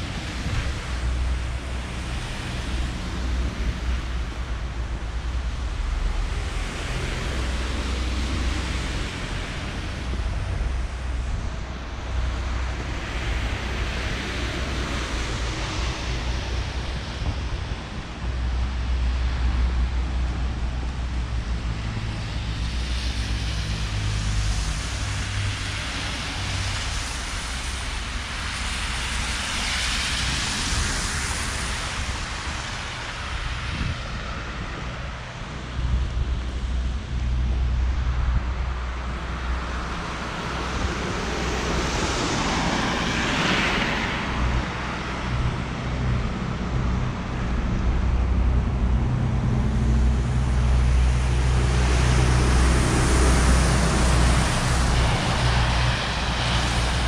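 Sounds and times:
cars passing: 0:00.0 - 0:57.0
wind rumble on microphone: 0:00.0 - 0:57.0.

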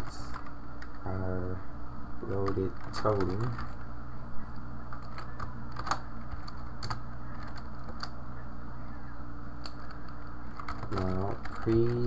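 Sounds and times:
low electrical hum: 0:00.0 - 0:12.0
keyboard keys clicking: 0:04.9 - 0:08.2, 0:09.6 - 0:12.0.

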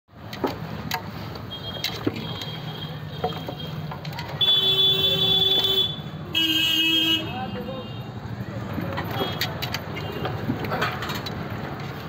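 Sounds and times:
long steady horn tone: 0:04.4 - 0:08.1.

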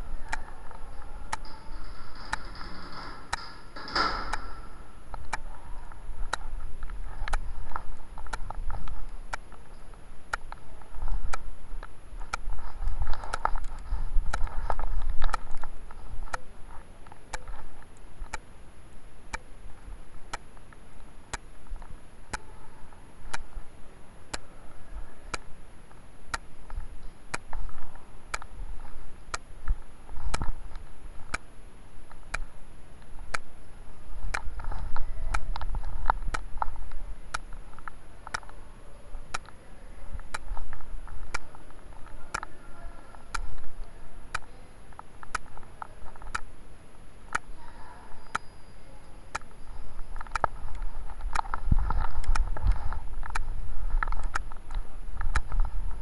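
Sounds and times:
steady ticking: 0:00.0 - 0:22.6, 0:23.2 - 0:23.6, 0:25.3 - 0:38.6, 0:49.2 - 0:56.0
muffled background noise: 0:00.0 - 0:56.0.

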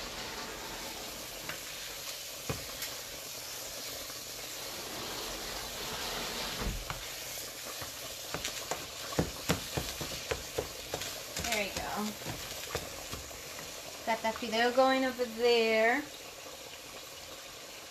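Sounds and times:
ground beef sizzling in a skillet: 0:00.0 - 0:17.9
spatula knocking against pan: 0:07.8 - 0:13.8.

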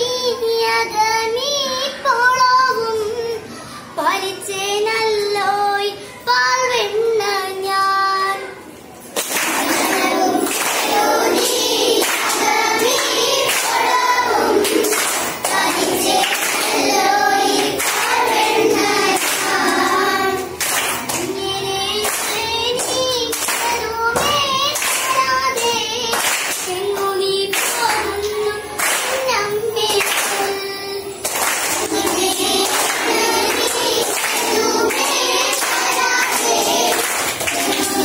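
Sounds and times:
children singing together: 0:00.0 - 0:38.0
hand-clapping: 0:09.2 - 0:38.0.

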